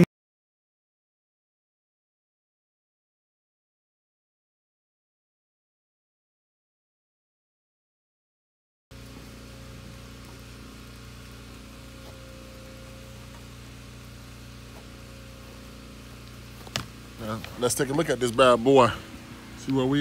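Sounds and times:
low mechanical hum: 0:08.9 - 0:20.0
even hiss: 0:09.0 - 0:20.0.

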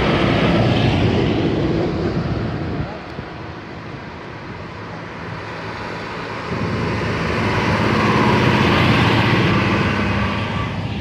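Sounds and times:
diesel tractor engine passing: 0:03.5 - 0:11.0.

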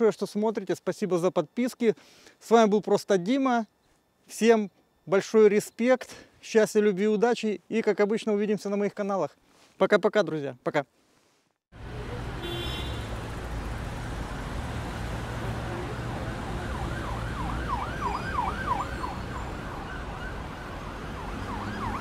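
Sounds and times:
low traffic rumble: 0:11.8 - 0:22.0
siren wailing: 0:15.4 - 0:22.0.

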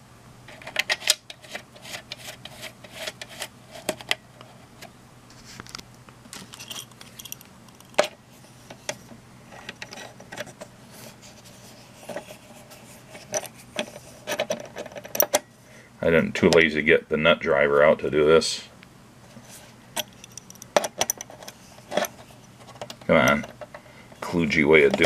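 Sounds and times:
metallic clicks of screws and tool: 0:20.0 - 0:22.1.

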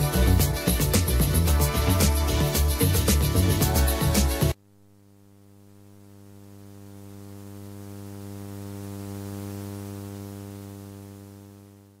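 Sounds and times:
electrical mains hum: 0:04.6 - 0:12.0.

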